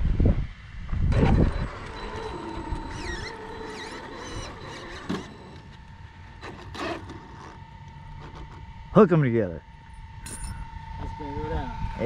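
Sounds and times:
steady hum: 0.0s - 12.0s
toy car motor whining: 1.1s - 8.7s.

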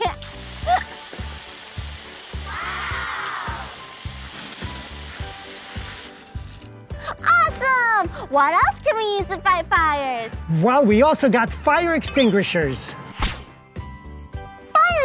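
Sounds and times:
fire hose spraying water: 0.0s - 6.9s.

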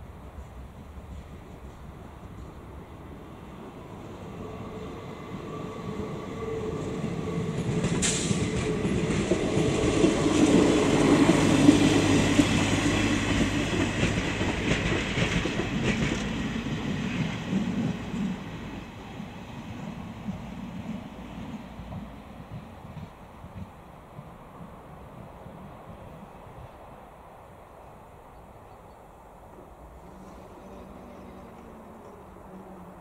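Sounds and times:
train wheel noise: 0.0s - 26.2s, 29.8s - 33.0s
diesel railcar engine drone: 0.0s - 33.0s
wheels clacking on rails: 6.4s - 24.4s.

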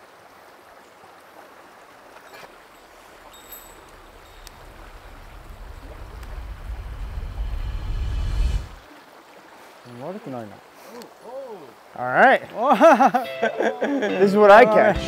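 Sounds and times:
stream running over stones: 0.0s - 13.3s
low rumble: 3.3s - 8.8s.

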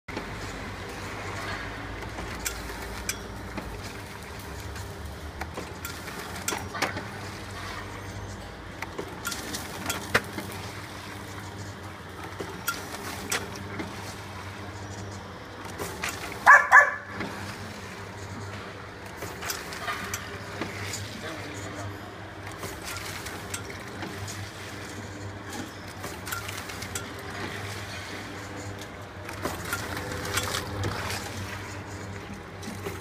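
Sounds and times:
packaging machine humming: 0.1s - 33.0s
mechanism clicks and knocks: 1.3s - 7.3s, 8.1s - 10.6s, 25.2s - 27.5s.

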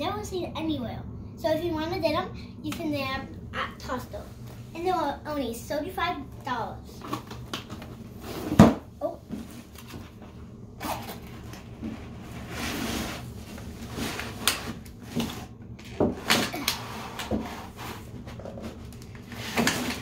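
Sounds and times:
cardboard box rustling and scraping: 11.8s - 15.5s.

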